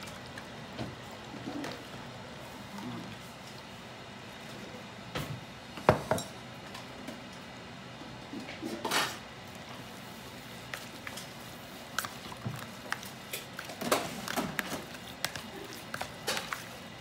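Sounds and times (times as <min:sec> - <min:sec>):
spatula mixing wet food: 0:09.4 - 0:17.0.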